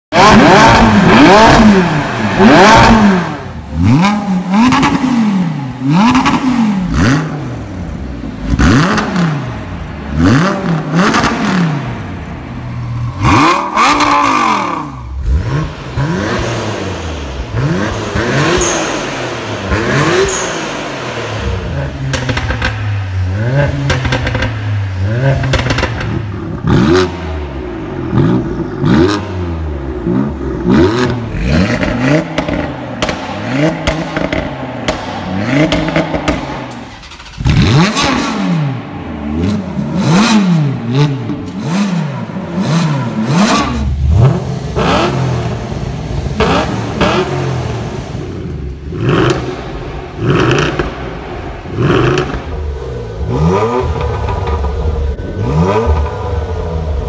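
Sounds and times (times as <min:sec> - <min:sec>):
car engines revving: 0:00.0 - 0:57.0
car engine idling: 0:00.1 - 0:57.0.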